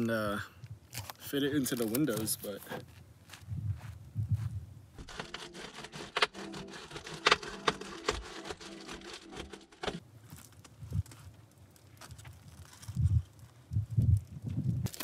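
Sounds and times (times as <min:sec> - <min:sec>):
foil insulation crinkling: 0:00.9 - 0:02.5, 0:05.0 - 0:13.7.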